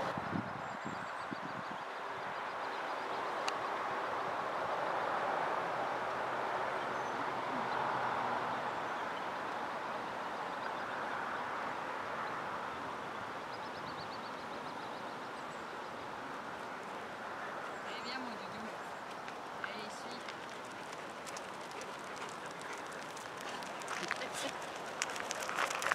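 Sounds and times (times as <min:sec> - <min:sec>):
outdoor background noise: 0:00.0 - 0:25.9
rapid high ticks: 0:20.2 - 0:25.9.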